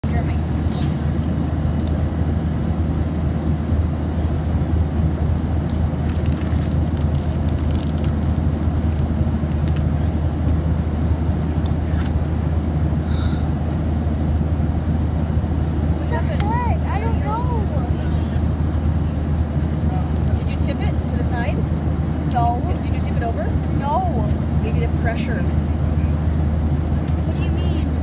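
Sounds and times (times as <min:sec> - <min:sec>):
airliner cabin drone: 0:00.0 - 0:28.0.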